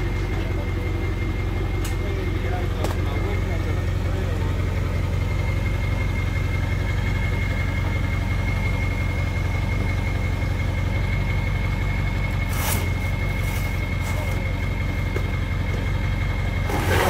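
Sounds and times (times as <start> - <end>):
vehicle engine idling: 0.0 - 17.0
short scrape: 12.4 - 14.3, 16.7 - 17.0.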